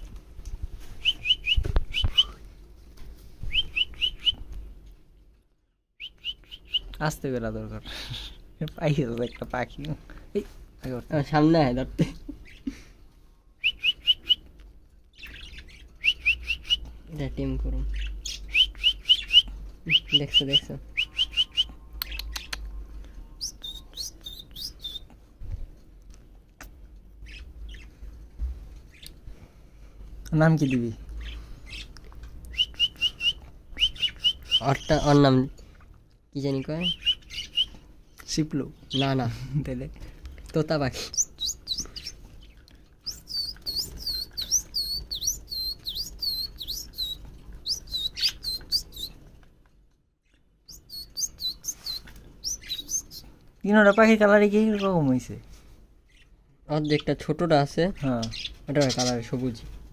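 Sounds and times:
budgerigar chick chirping: 1.1 - 2.4, 3.5 - 4.4, 6.0 - 7.0, 13.6 - 14.4, 15.2 - 16.8, 17.9 - 22.7, 23.4 - 25.1, 30.6 - 35.2, 36.8 - 37.7, 41.1 - 49.1, 50.7 - 53.2.

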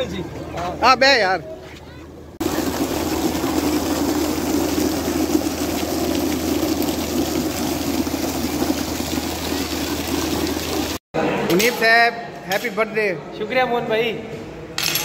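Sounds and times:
fountain water splashing: 2.4 - 11.0.

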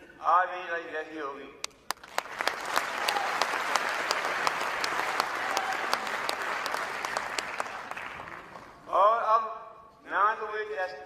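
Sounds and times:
audience applauding: 1.9 - 8.8.

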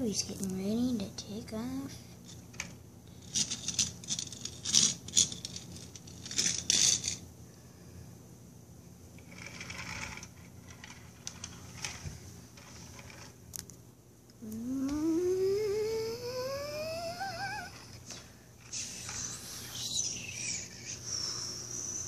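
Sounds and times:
toy scraping on tiled floor: 3.2 - 7.2, 9.2 - 13.4, 16.8 - 20.8
child making jet whine: 14.4 - 22.0.

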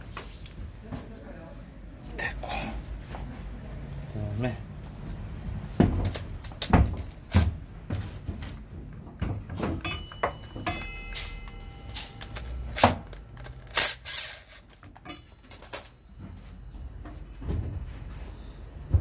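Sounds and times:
metal tools knocking and clicking: 9.5 - 13.6, 14.6 - 16.0
cordless impact wrench burst: 13.7 - 14.6.

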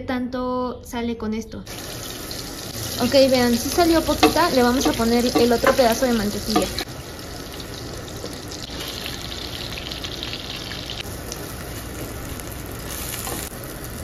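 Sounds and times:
rice sizzling in butter: 1.7 - 14.0
wooden spoon stirring in pot: 3.6 - 6.8.

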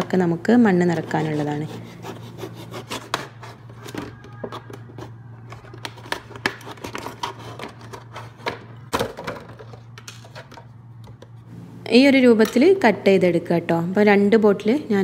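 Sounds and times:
low steady hum: 0.0 - 15.0
knife sawing through plastic bottle: 1.1 - 3.7
plastic crackling and clicking: 3.9 - 10.2.

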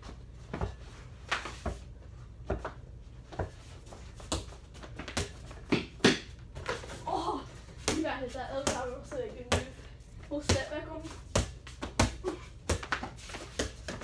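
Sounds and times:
basketball bouncing on hard floor: 4.2 - 6.8, 7.8 - 9.8, 10.4 - 14.0.

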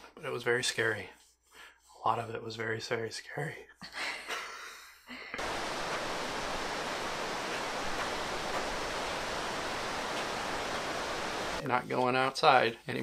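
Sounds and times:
white-water river rushing: 5.4 - 11.6.

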